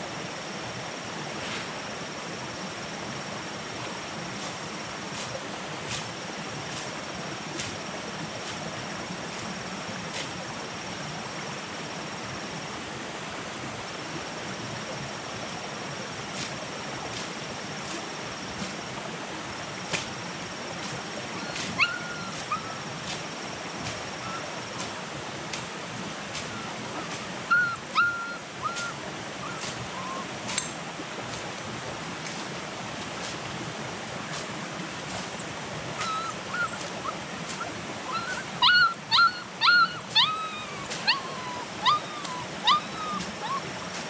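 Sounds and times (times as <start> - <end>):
steady background hiss: 0.0 - 44.0
puppy whimpering: 21.4 - 22.8, 26.5 - 30.6, 36.0 - 43.8.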